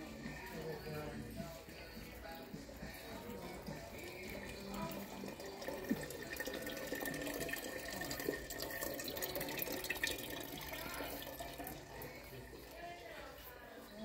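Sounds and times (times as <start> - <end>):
water trickling into metal pail: 2.7 - 12.8.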